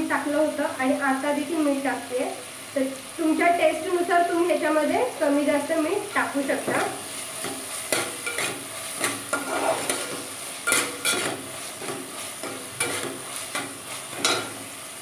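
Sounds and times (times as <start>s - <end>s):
onion and tomato sizzling in pan: 0.0s - 15.0s
spatula scraping pan: 6.6s - 14.7s.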